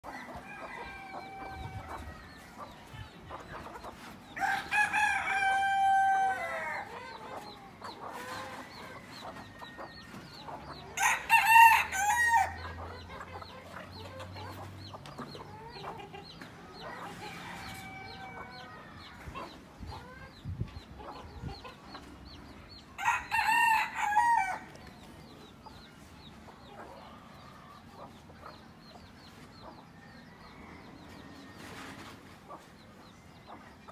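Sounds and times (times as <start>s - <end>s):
hens clucking: 0.0s - 33.9s
rooster crowing: 0.1s - 2.0s, 4.4s - 6.9s, 11.0s - 12.6s, 17.3s - 18.8s, 23.0s - 24.7s.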